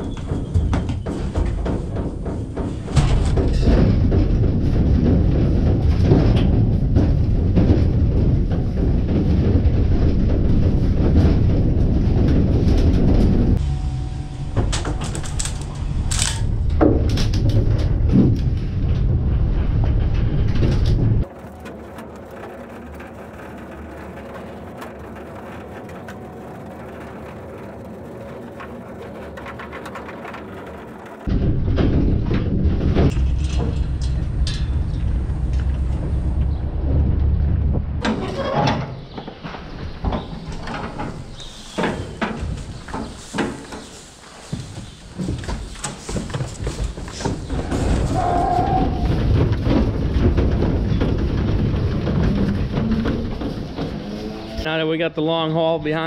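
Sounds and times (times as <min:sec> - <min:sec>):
metal trailer clanks and rattles: 0:00.0 - 0:21.3, 0:29.1 - 0:54.7
road rumble: 0:00.0 - 0:55.0.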